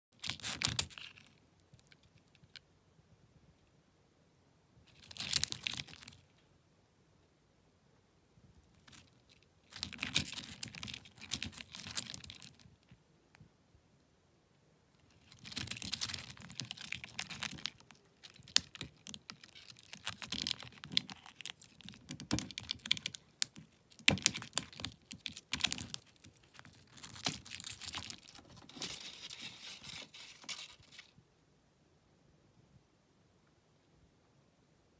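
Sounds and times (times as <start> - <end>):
beetle shells clicking: 15.2 - 28.4.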